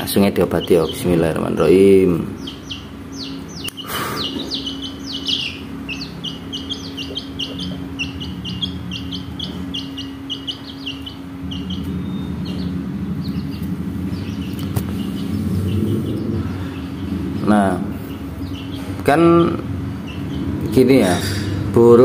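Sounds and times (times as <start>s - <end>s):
chicks peeping: 0.0s - 22.0s.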